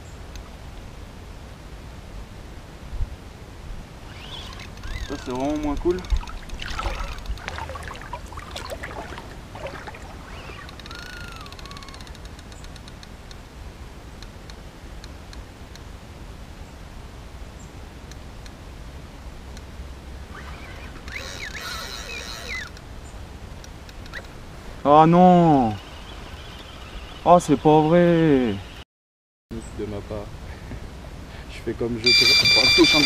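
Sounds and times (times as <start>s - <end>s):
low background rumble: 0.0s - 12.4s
reel rapid ticking: 4.1s - 12.3s, 32.1s - 33.0s.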